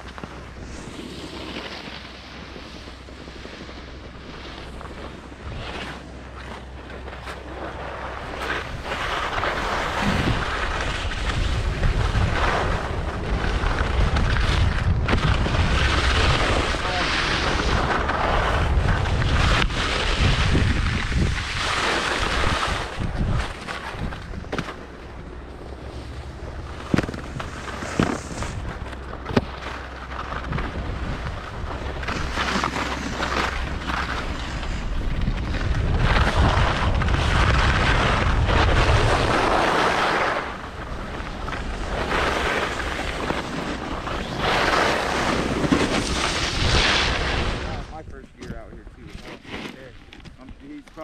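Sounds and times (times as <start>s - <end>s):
wind rushing over microphone: 0.0s - 49.2s
skis hissing over snow: 0.1s - 6.5s, 7.2s - 14.7s, 15.3s - 24.1s, 25.9s - 28.8s, 31.7s - 47.9s.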